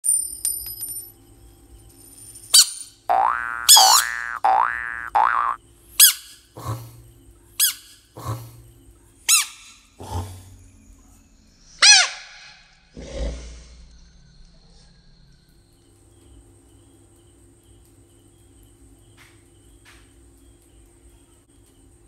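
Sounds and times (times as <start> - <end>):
bullfrog rough croak: 3.1 - 5.6, 12.6 - 13.9
bullfrog distress squeaks: 3.2 - 6.2, 11.8 - 12.5.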